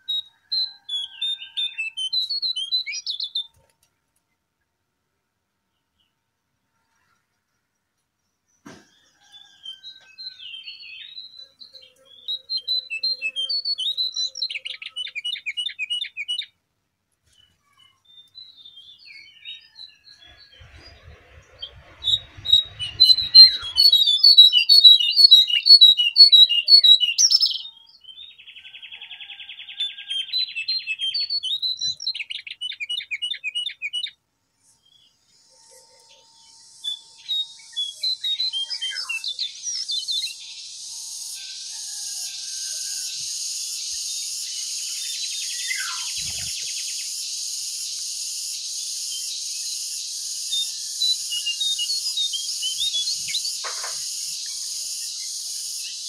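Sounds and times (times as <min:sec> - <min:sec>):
songbird chirps and trills: 0:00.0 - 0:04.6, 0:05.7 - 0:56.0
buzzy bird trill: 0:17.4 - 0:27.8.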